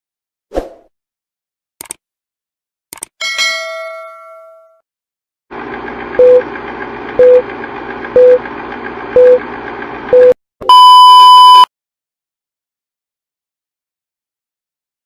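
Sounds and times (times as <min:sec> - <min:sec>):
test tone: 0:10.1 - 0:11.7
short beeps: 0:10.2 - 0:11.7.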